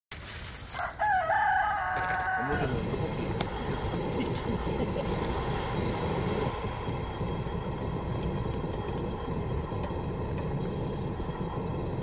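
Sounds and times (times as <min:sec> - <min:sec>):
rooster crowing: 0:00.7 - 0:03.2
pan of water boiling hard: 0:01.3 - 0:12.0.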